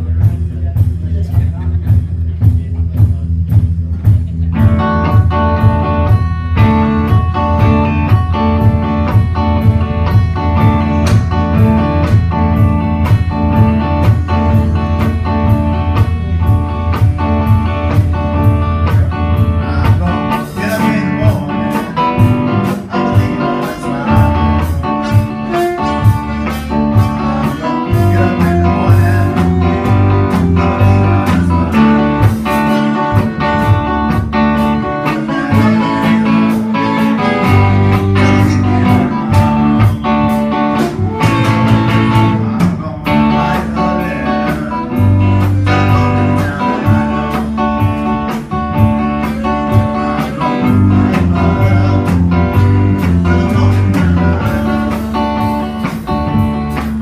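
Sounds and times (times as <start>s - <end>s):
drum kit beat: 0.0s - 57.0s
electric guitar: 0.0s - 57.0s.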